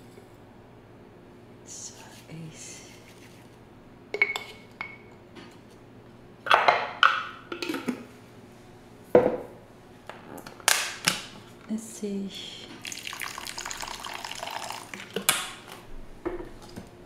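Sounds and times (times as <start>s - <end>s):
dishes and cutlery clinking: 4.2s - 5.1s.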